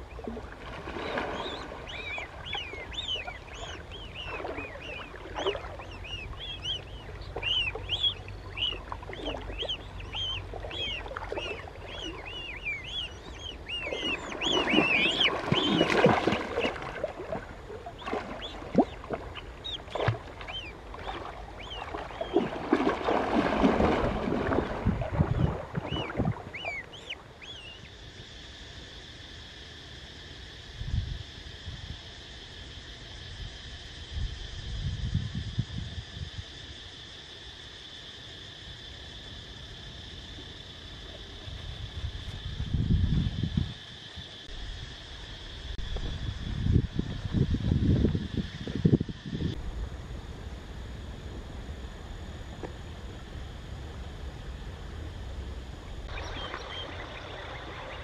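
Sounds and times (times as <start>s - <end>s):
water splashing: 0.0s - 27.3s, 56.0s - 58.0s
gosling peeping: 1.0s - 16.9s, 17.8s - 22.6s, 25.1s - 27.9s.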